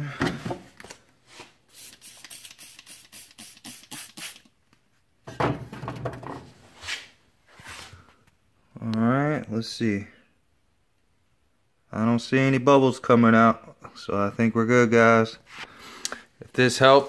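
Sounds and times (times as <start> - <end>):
rubbing and handling noise: 0.2 - 8.2
spray bottle squirts: 1.7 - 4.5.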